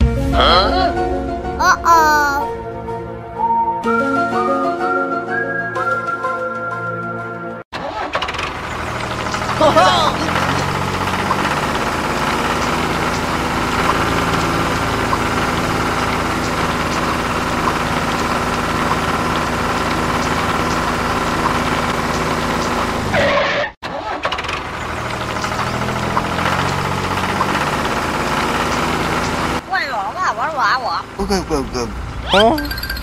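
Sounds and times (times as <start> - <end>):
tractor engine running: 7.8 - 33.0.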